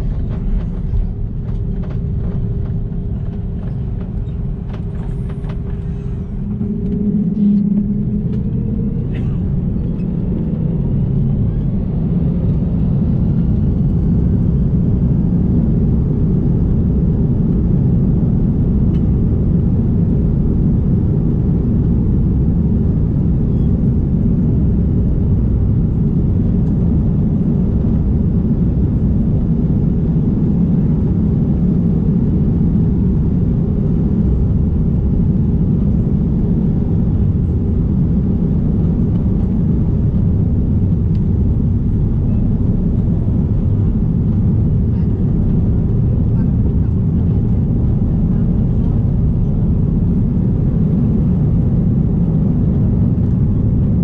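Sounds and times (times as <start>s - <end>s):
takeoff roll rumble: 0.0s - 54.0s
jet engines spooling up: 3.6s - 11.9s.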